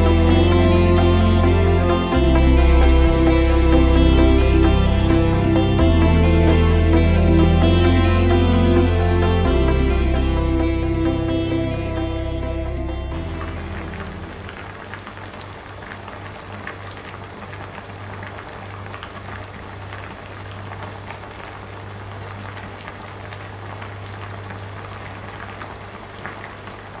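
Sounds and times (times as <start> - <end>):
low steady hum: 0.0 - 25.4
stew bubbling at a boil: 13.2 - 27.0.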